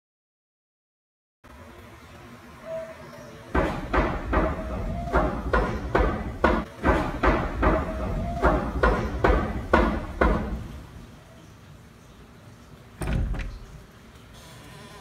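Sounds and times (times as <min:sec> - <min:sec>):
banging on a wooden door: 0:03.6 - 0:10.8, 0:13.0 - 0:13.7.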